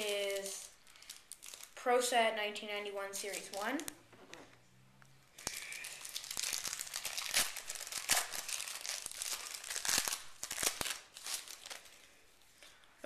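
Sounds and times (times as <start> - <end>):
card pack wrapper crinkling: 0.0 - 1.8, 5.4 - 12.0.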